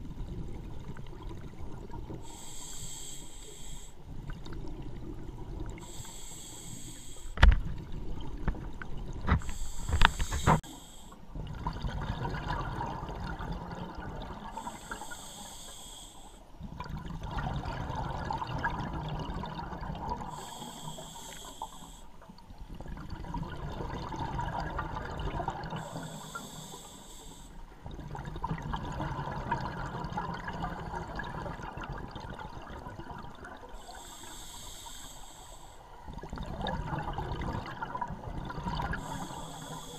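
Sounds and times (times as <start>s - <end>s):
diver inhaling through regulator: 2.2s - 4.1s, 5.8s - 7.4s, 9.4s - 11.3s, 14.5s - 16.5s, 20.3s - 22.2s, 25.8s - 27.7s, 33.8s - 35.9s, 38.9s - 39.9s
exhaust bubbling underwater: 11.3s - 14.8s, 16.6s - 20.4s, 22.7s - 26.4s, 27.8s - 33.8s, 36.0s - 39.8s.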